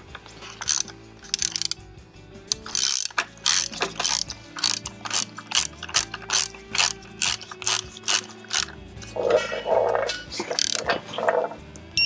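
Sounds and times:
electric ratchet bursts: 0.4s - 1.8s, 2.5s - 8.8s.

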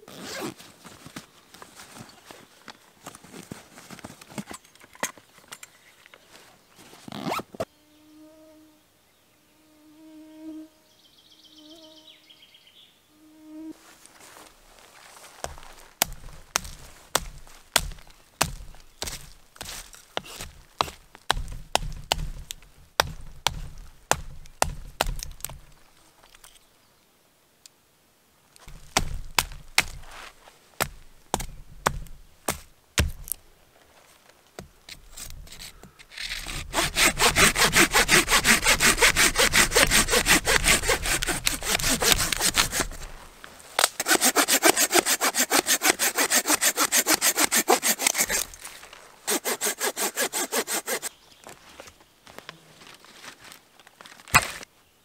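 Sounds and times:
sharp wooden snaps and knocks: 15.5s - 19.4s, 20.2s - 26.6s, 30.8s - 33.4s, 53.9s - 54.7s
hand saw cutting dry wood: 15.5s - 22.4s, 34.9s - 43.2s, 43.8s - 51.1s.

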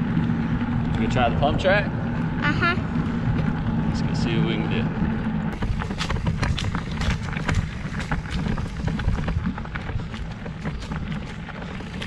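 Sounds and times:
wind and tyre rumble: 0.0s - 12.0s
bike clicks and rattles: 2.9s - 12.0s.

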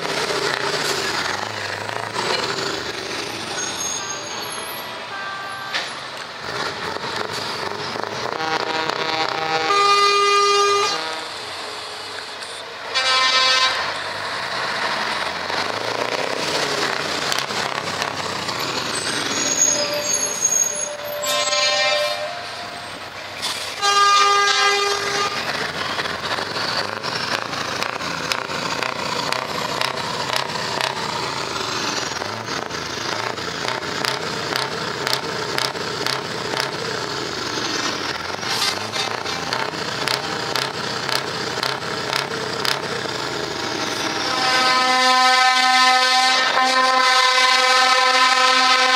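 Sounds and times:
truck engine with open exhaust: 0.0s - 48.9s
multi-tone truck air horn: 3.6s - 6.1s, 8.2s - 14.1s, 19.4s - 23.0s, 23.7s - 25.6s, 44.0s - 48.9s.

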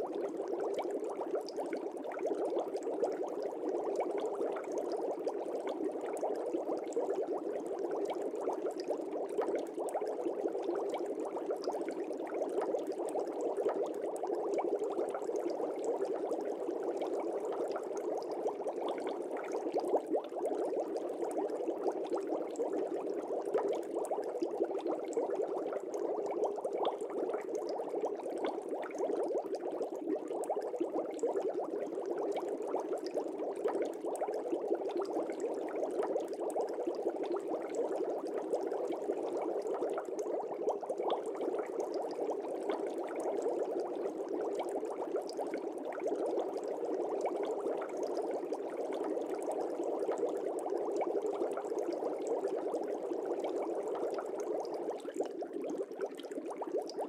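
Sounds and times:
aquarium air bubbling: 6.1s - 46.2s.

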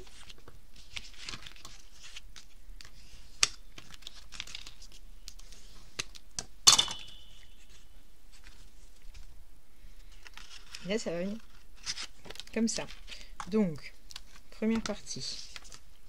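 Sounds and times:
paper rustling and scraping: 0.0s - 6.2s, 7.4s - 9.3s, 10.0s - 13.3s, 14.1s - 15.9s.

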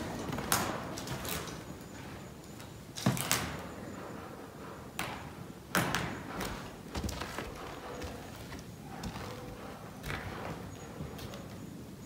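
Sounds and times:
footsteps on wooden floorboards: 6.0s - 11.6s.

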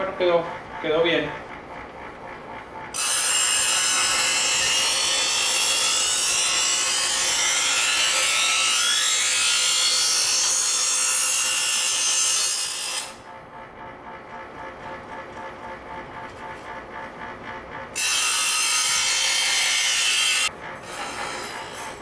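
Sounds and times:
faint motor hum: 0.0s - 22.0s
knife sharpener grinding blade: 18.0s - 22.0s.

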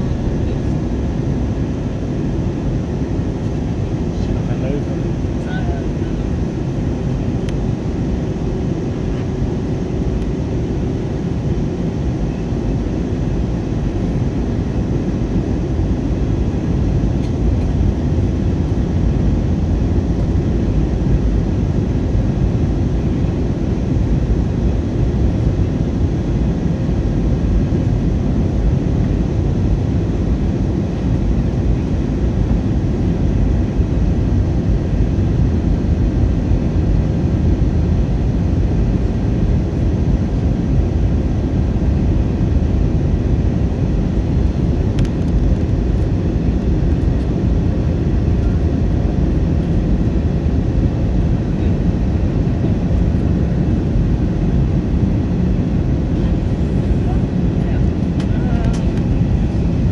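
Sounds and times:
airflow rushing: 0.0s - 5.3s, 52.0s - 59.9s
jet engine hum: 0.0s - 59.9s.

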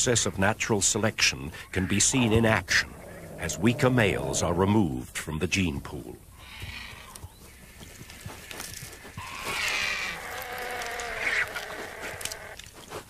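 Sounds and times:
vultures and jackal squabbling: 1.4s - 4.7s, 6.3s - 13.0s
wavering squealing call: 1.8s - 4.6s.

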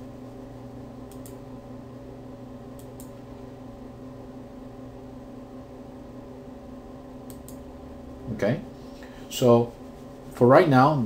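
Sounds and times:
low electrical hum: 0.0s - 11.0s
computer mouse clicks: 1.1s - 1.4s, 2.8s - 3.2s, 7.3s - 7.6s.

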